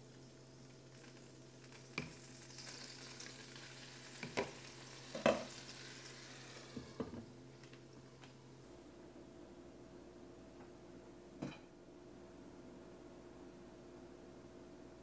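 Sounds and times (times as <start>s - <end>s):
water sizzling in hot pan: 0.0s - 7.2s
faint steady hum: 0.0s - 15.0s.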